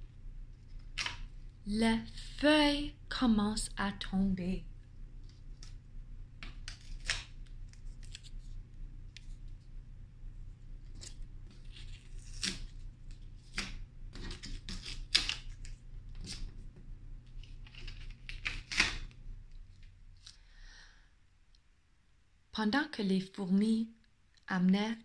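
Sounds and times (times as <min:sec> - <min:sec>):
low steady hum: 0:00.0 - 0:25.0
paper crinkling and tapping: 0:10.9 - 0:20.3.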